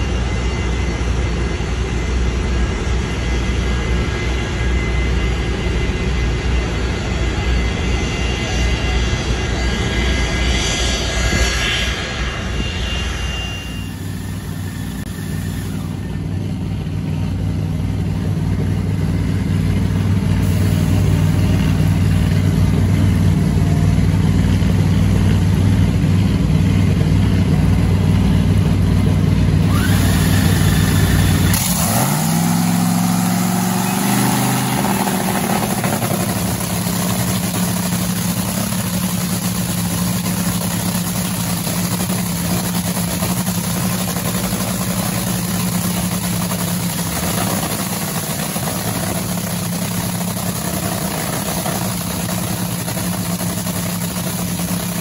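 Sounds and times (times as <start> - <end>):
drag racing engine rushing: 11.0 - 55.0
engine idling: 13.6 - 55.0.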